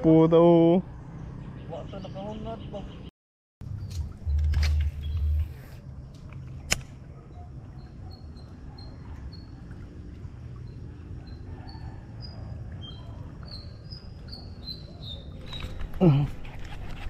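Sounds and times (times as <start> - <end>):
steady low rumble: 3.6 - 7.2.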